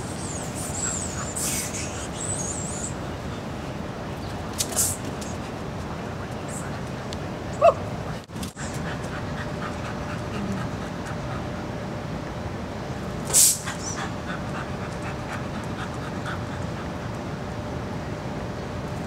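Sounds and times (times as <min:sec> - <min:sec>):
dog panting: 0:08.6 - 0:11.7, 0:13.7 - 0:17.4
short loud hiss: 0:13.2 - 0:13.7.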